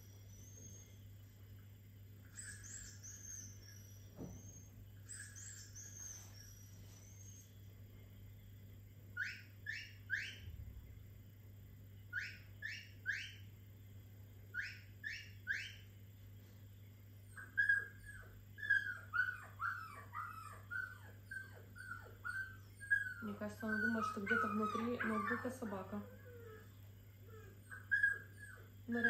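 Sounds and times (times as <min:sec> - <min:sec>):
dog whimpering and yelping: 0:17.3 - 0:29.0
dog whining through laptop speaker: 0:17.4 - 0:29.0.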